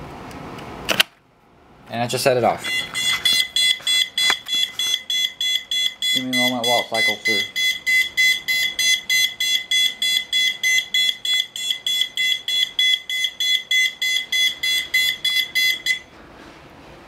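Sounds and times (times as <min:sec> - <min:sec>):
rapid high-pitched alarm beeps: 0:02.6 - 0:16.1.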